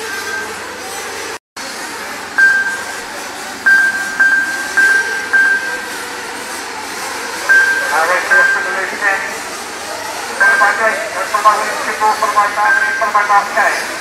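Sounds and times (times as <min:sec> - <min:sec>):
rc car engines buzzing: 0:00.0 - 0:14.0
short high beeps: 0:02.4 - 0:03.1, 0:03.7 - 0:06.0, 0:07.5 - 0:09.2, 0:10.4 - 0:11.1, 0:12.4 - 0:13.5.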